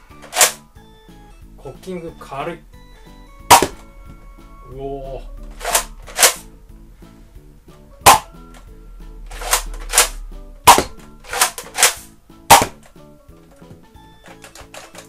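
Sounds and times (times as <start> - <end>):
toy blaster shots cracking: 0.2 - 0.6, 3.5 - 3.8, 5.5 - 6.4, 8.1 - 8.4, 9.3 - 12.9
pump grip clacking: 14.2 - 15.0.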